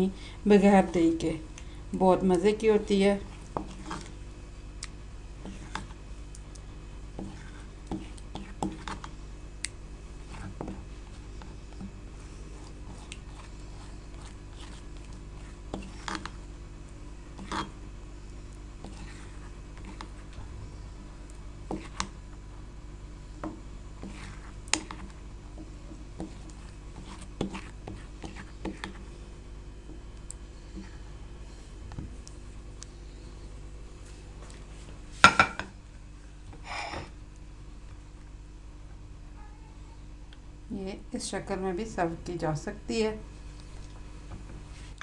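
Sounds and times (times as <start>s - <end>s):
steady low hum: 0.0s - 45.0s
spatula scraping stone mortar: 17.4s - 17.7s.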